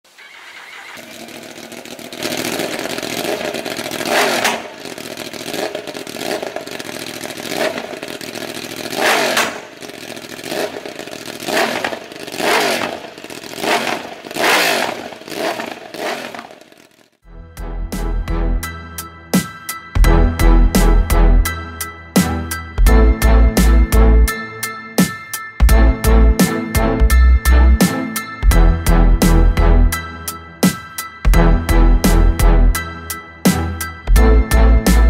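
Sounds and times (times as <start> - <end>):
motorcycle engine revving: 0.0 - 17.2.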